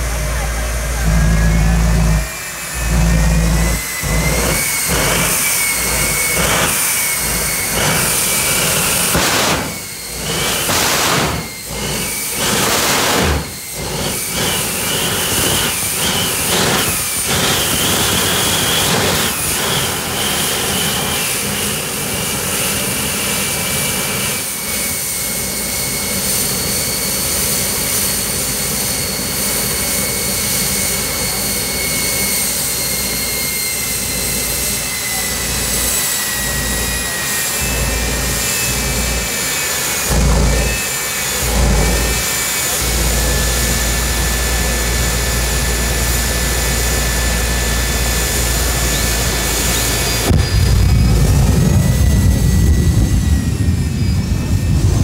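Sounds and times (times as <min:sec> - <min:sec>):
deep rumble: 0:00.0 - 0:19.8, 0:37.6 - 0:55.0
turbine engine whine: 0:00.0 - 0:55.0.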